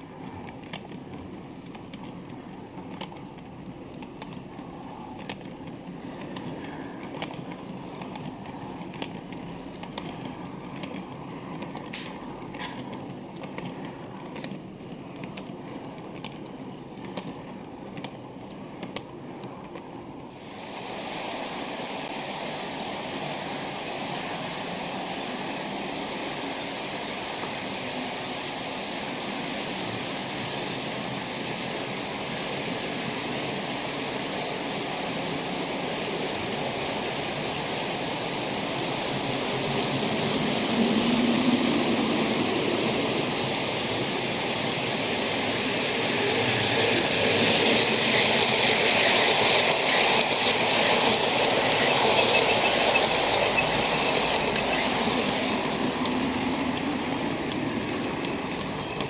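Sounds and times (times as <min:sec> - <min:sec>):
wagon wheels clicking over rail joints: 0:00.0 - 0:20.2, 0:39.1 - 0:59.0
model train rumbling: 0:00.0 - 0:59.0.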